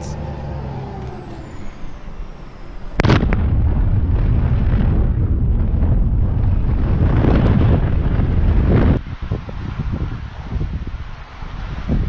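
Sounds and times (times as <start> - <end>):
heavy rumble: 0.0 - 12.0
loud bang: 2.1 - 9.0.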